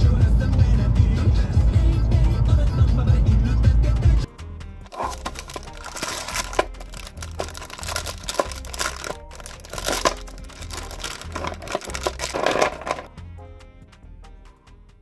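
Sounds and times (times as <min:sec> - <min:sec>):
soft background music: 0:04.2 - 0:15.0
packaging crinkling: 0:04.9 - 0:13.1.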